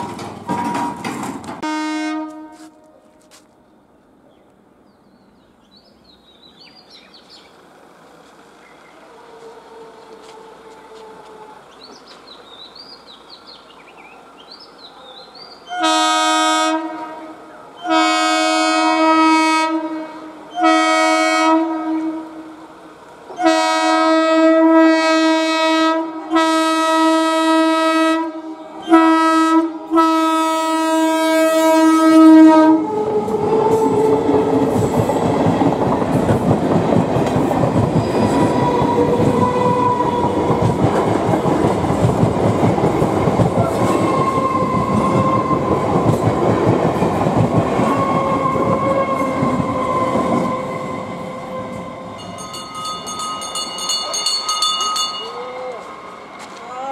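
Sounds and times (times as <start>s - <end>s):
train wheels rumbling on rails: 0.0s - 56.9s
train horn blasts: 1.6s - 3.2s, 15.6s - 22.6s, 23.3s - 34.9s, 43.8s - 45.8s, 47.8s - 52.6s.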